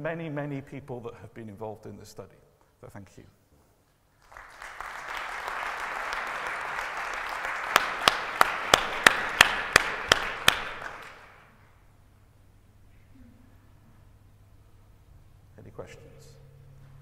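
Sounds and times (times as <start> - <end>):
sharp nearby claps: 4.2 - 11.5
audience applauding: 4.2 - 11.6.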